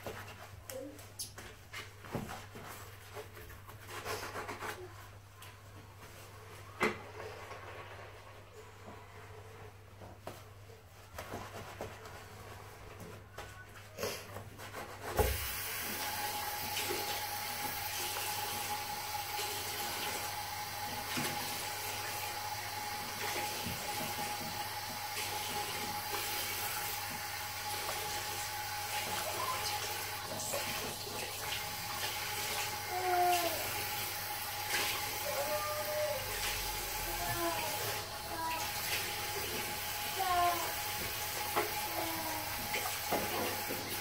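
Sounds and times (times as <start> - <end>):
tap water running into basin: 15.2 - 44.0.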